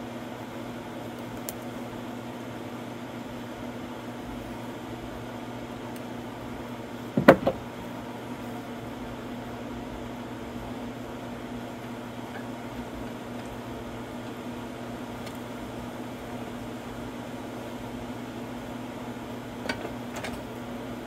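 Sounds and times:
low machine hum: 0.0s - 21.0s
plastic parts knocking together: 7.2s - 7.6s.

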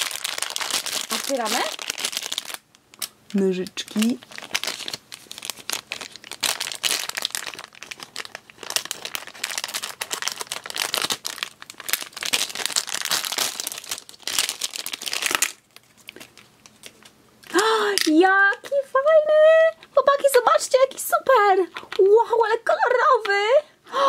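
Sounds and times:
plastic packet crinkling: 0.0s - 18.8s.

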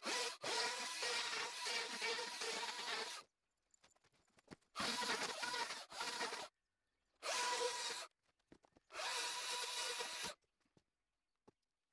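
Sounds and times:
electric chainsaw cutting cardboard: 0.0s - 3.2s, 4.8s - 6.5s, 7.2s - 8.1s, 8.9s - 10.4s.

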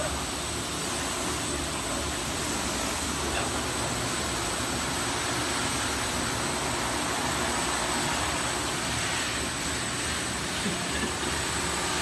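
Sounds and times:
sanding machine rushing noise: 5.0s - 12.0s.

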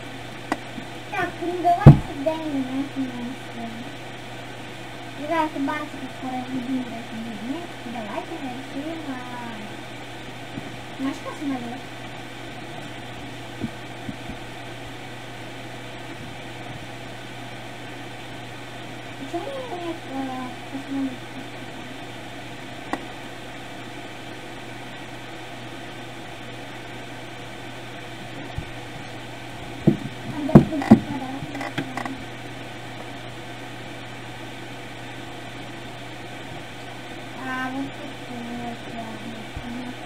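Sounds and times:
low hum: 0.0s - 40.0s
knocks on wooden desk: 1.8s - 2.1s, 29.8s - 31.1s.

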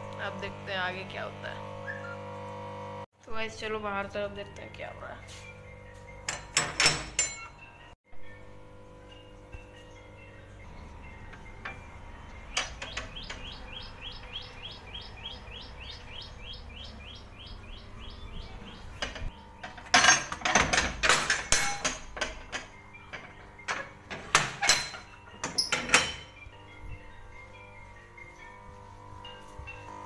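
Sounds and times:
metal door bolt clanking: 6.2s - 7.5s, 19.0s - 26.4s
bird chirping rapidly: 10.2s - 19.6s.

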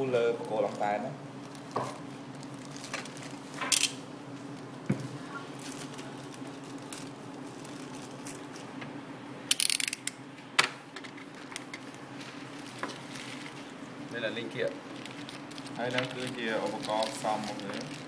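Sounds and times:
steady low hum: 0.0s - 18.0s
plastic bag crinkling: 0.4s - 3.6s, 4.4s - 8.7s, 11.3s - 18.0s
crisp clicks: 15.0s - 18.0s.

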